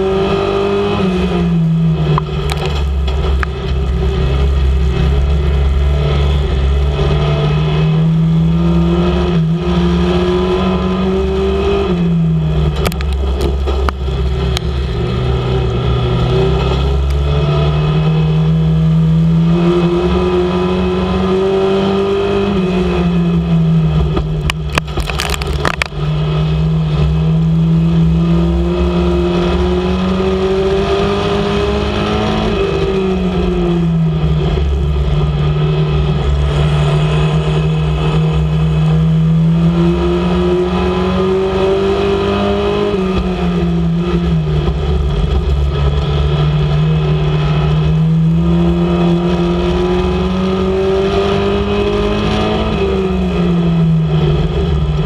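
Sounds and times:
race car engine revving: 0:00.0 - 0:55.0
low rumble: 0:01.3 - 0:09.7, 0:11.9 - 0:19.8, 0:22.8 - 0:29.0, 0:32.6 - 0:40.6.

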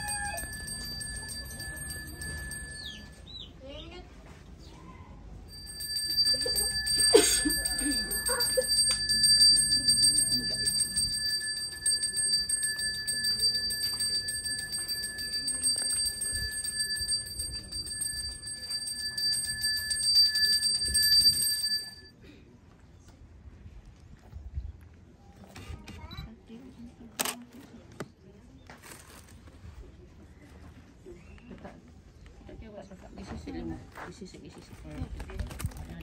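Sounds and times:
hand bell ringing: 0:00.0 - 0:03.3, 0:05.5 - 0:22.1.

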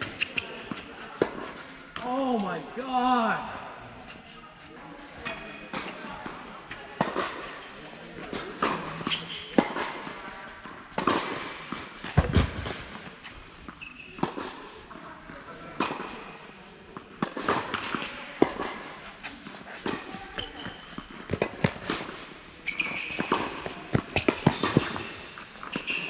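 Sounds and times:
shoes squeaking on court: 0:00.0 - 0:02.4, 0:07.4 - 0:14.5, 0:19.0 - 0:26.0
tennis balls struck and bouncing: 0:00.0 - 0:02.4, 0:05.2 - 0:14.9, 0:15.8 - 0:26.0.

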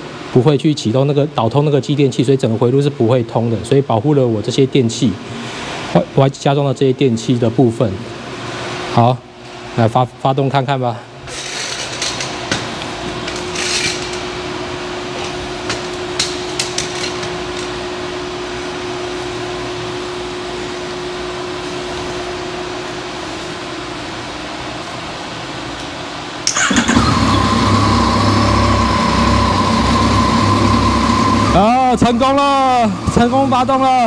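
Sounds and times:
motorcycle engine starting and idling: 0:26.4 - 0:32.0.

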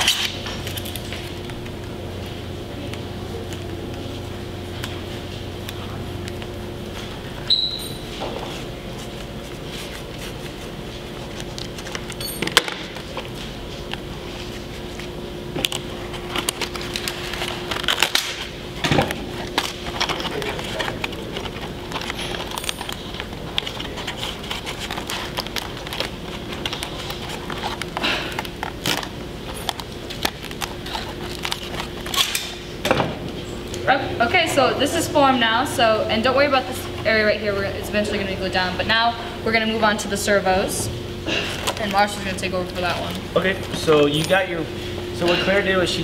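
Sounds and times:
faint steady hum: 0:00.0 - 0:46.0
foam board crackling: 0:19.3 - 0:32.1.

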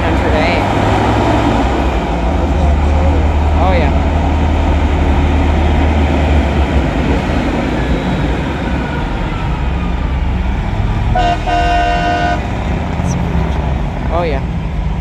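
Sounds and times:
truck engines rumbling: 0:00.0 - 0:15.0
truck horn blast: 0:11.1 - 0:12.5.

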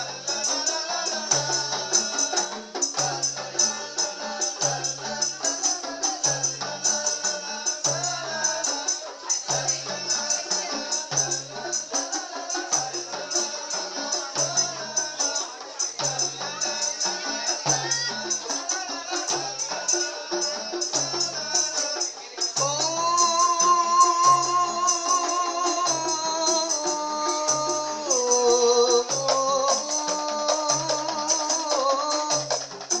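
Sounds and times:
tambourines jingling: 0:00.0 - 0:33.0.

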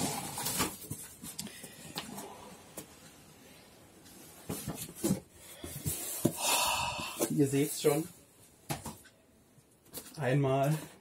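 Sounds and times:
cardboard rustling scrape: 0:00.0 - 0:01.4.

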